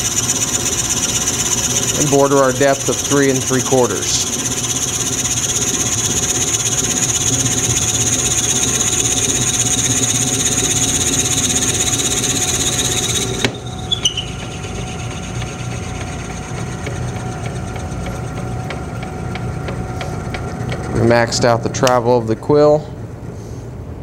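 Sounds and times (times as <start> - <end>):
drill bit boring wood whine: 0.0 - 22.8
lathe running: 0.0 - 23.1
tailstock click: 21.8 - 22.1.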